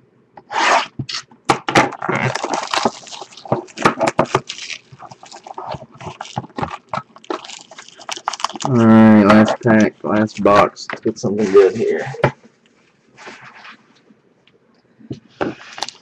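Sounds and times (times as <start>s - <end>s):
box cutter slitting shrink wrap: 1.8s - 8.8s
shrink wrap crinkling: 1.9s - 13.9s, 15.6s - 16.0s.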